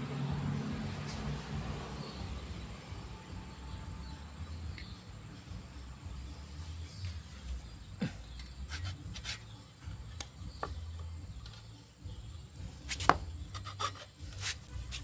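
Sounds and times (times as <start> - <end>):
hacksaw blade scraping pipe: 8.7 - 9.5, 12.9 - 15.0.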